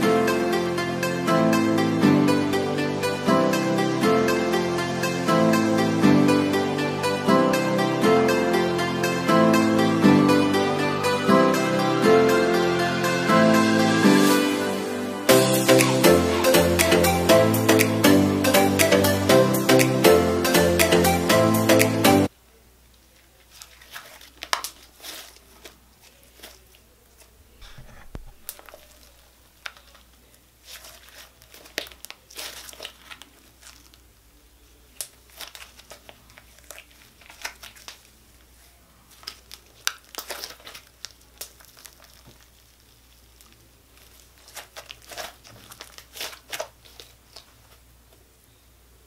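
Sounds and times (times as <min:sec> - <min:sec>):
slime crackling and popping: 0:23.2 - 0:27.3, 0:28.4 - 0:34.1, 0:34.8 - 0:38.5, 0:39.1 - 0:47.6.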